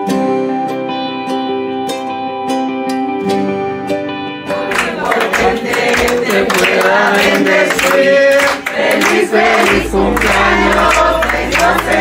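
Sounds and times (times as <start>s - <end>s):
guitar chord: 0.0s - 12.0s
group singing a celebration song: 4.5s - 12.0s
rhythmic hand clapping: 4.5s - 12.0s.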